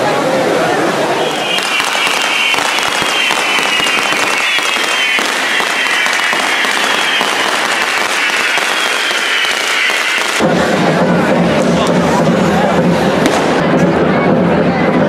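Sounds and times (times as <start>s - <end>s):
high falling whistle: 1.1s - 10.4s
fireworks sparks hissing crackle: 1.1s - 13.9s.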